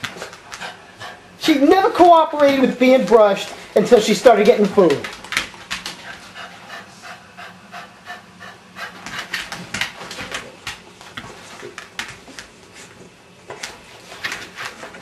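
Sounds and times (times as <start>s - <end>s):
dog scratching and rubbing: 13.6s - 15.0s.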